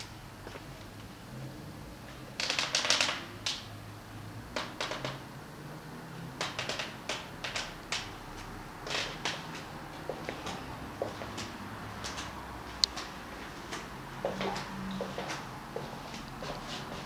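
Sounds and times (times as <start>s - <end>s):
sharp clicks and ticks: 6.4s - 8.2s.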